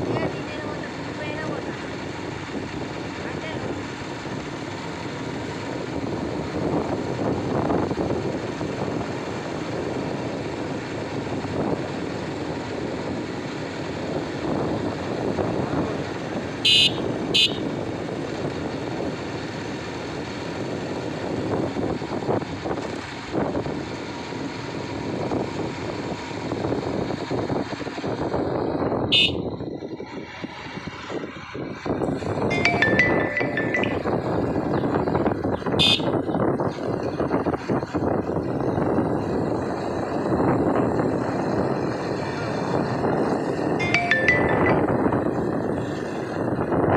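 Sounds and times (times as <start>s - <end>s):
wind rushing over microphone: 0.0s - 32.5s, 34.0s - 46.9s
motorcycle riding along road: 0.0s - 46.9s
short high-pitched sounds: 32.5s - 34.5s, 43.8s - 45.4s.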